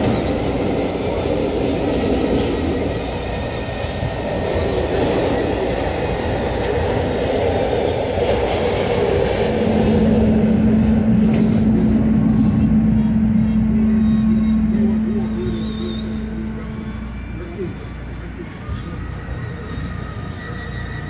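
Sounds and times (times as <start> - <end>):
trolley car rail rumble: 0.0 - 21.0
steady low hum: 7.8 - 20.6.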